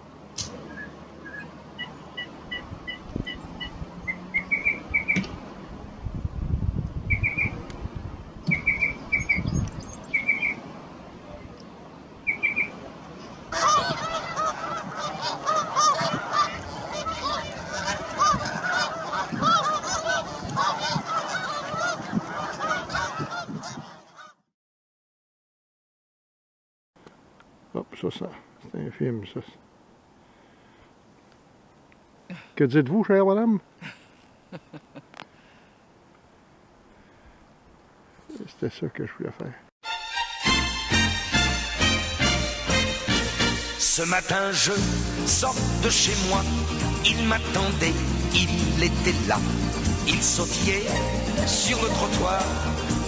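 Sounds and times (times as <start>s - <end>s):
small birds chirping: 0.6s - 5.3s, 7.1s - 7.6s, 8.4s - 10.6s, 11.3s - 12.8s
geese honking: 0.7s - 5.3s, 8.5s - 9.4s, 12.2s - 24.5s, 39.9s - 53.0s.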